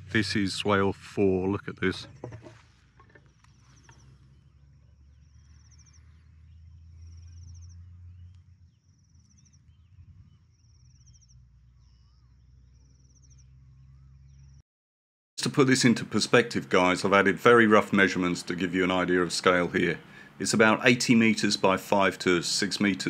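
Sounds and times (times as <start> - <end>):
low rumble: 0.0 - 14.6.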